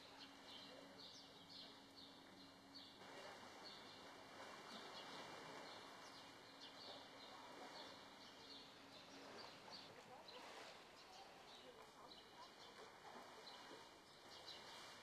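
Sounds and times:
small birds chirping: 4.7s - 15.0s.

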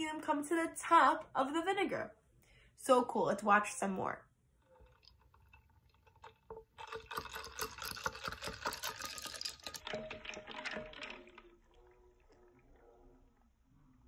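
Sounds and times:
liquid sloshing: 4.6s - 14.0s.

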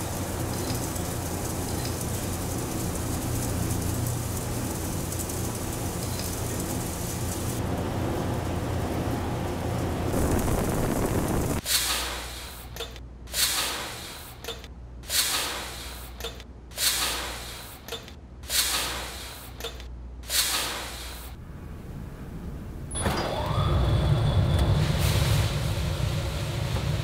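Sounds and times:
coffee beans rattling down metal chute: 0.0s - 7.6s
roasting machinery humming: 0.0s - 11.6s, 23.7s - 27.0s.

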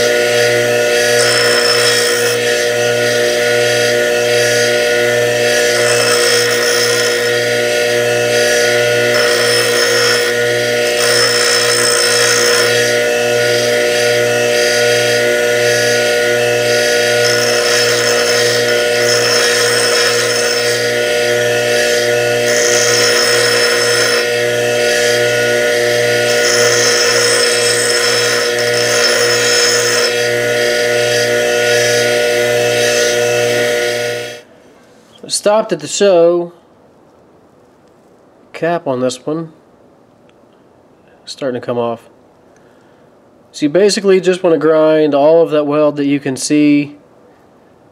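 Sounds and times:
metal grinding hiss: 0.0s - 34.4s
bench grinder motor hum: 0.0s - 34.5s.

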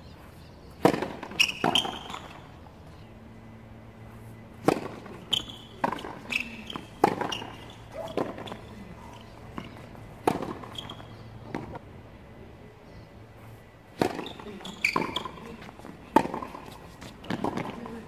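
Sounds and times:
faint low hum: 0.0s - 18.0s
racket hitting tennis ball: 0.8s - 2.5s, 4.5s - 11.8s, 13.9s - 18.0s
tennis ball bouncing: 0.8s - 2.5s, 4.5s - 11.8s, 13.9s - 18.0s.

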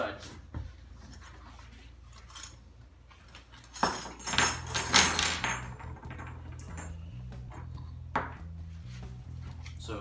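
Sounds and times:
metal wrenches clattering on wood: 3.3s - 8.5s.

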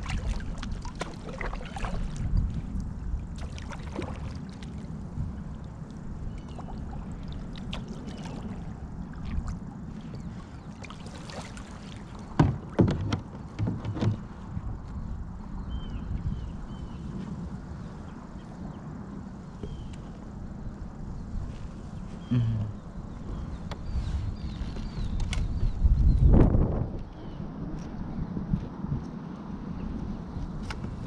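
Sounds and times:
handling knocks and thumps: 12.3s - 14.4s.

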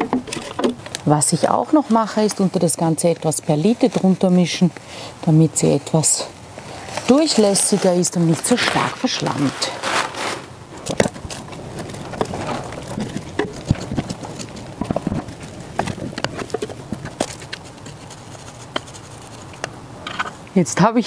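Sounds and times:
tools scratching in potting soil: 0.2s - 4.7s, 5.7s - 20.4s.

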